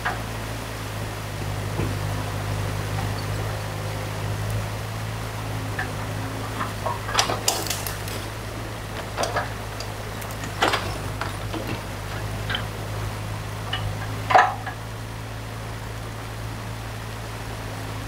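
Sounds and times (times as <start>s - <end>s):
diesel excavator engine running: 0.0s - 18.0s
rushing stream water: 0.0s - 18.0s
wood cracking against bucket: 5.8s - 12.8s.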